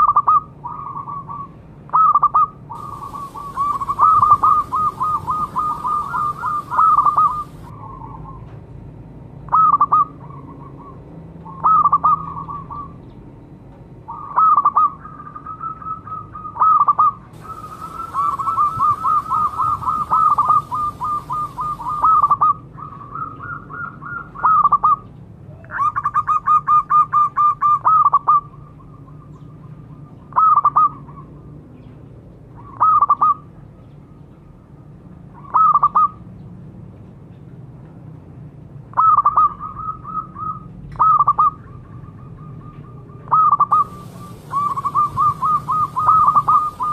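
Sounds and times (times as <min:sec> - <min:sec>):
dove cooing: 0:02.0 - 0:08.4, 0:16.1 - 0:26.0, 0:42.4 - 0:46.9.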